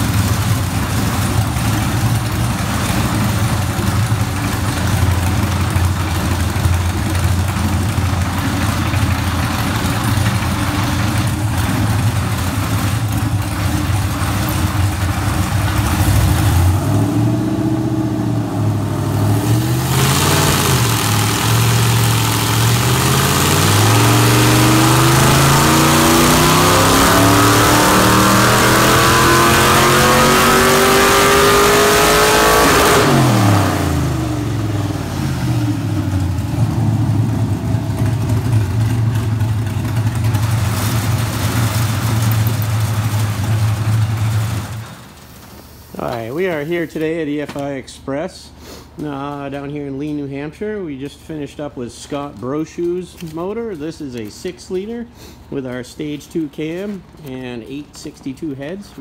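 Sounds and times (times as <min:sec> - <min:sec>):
car engine revving: 0:00.0 - 0:45.2.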